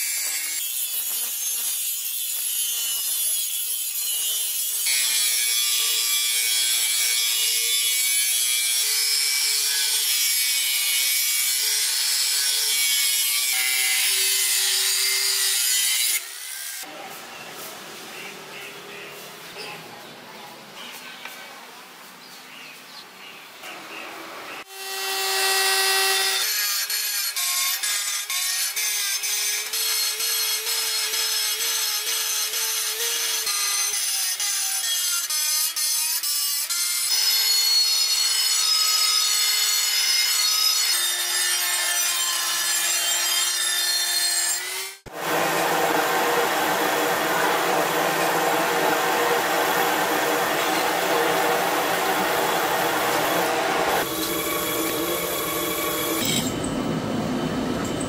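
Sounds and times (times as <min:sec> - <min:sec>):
die grinder whining: 0:44.8 - 0:58.0
drill press drilling through steel: 0:45.2 - 0:58.0.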